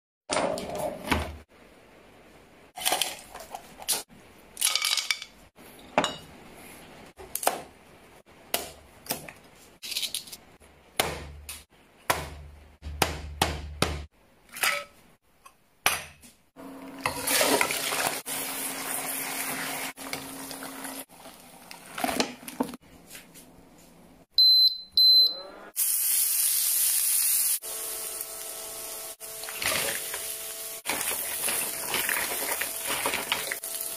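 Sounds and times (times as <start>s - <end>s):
short high beeps: 24.4s - 25.4s
food sizzling on a grill: 25.8s - 33.9s.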